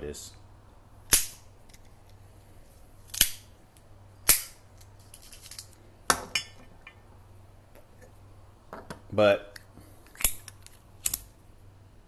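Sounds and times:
cigar cutter snapping shut: 1.1 - 1.4.

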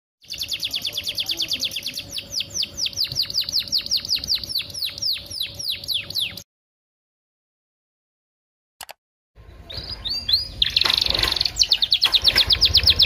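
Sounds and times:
canary singing: 0.2 - 6.5, 9.6 - 13.0.

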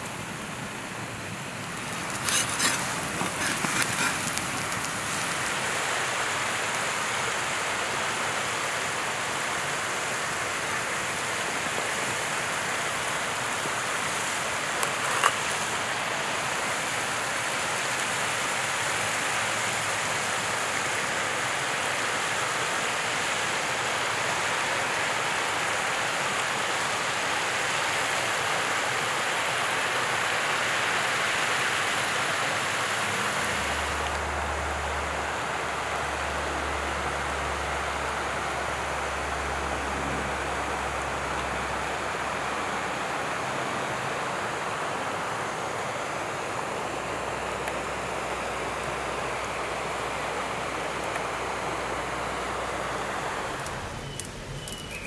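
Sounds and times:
rushing outdoor noise: 0.0 - 55.0
crisp clicks: 1.6 - 5.6
knife cutting crust on board: 2.1 - 4.5.

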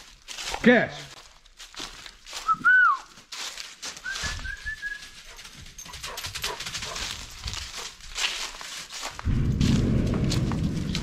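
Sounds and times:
footsteps through dry leaves: 0.0 - 11.0
person whistling: 2.4 - 3.2, 4.0 - 5.1.

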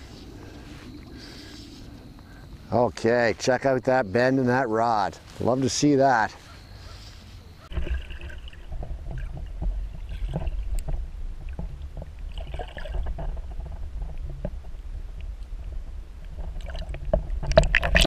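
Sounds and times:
muffled underwater river rumble: 6.9 - 18.0
underwater knocks and gurgles: 7.7 - 18.0.

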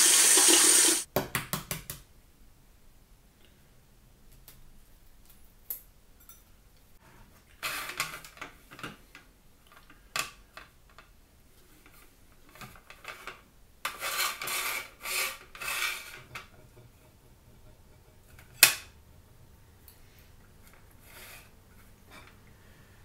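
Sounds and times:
egg slicer rubbing and clacking: 13.9 - 18.6.

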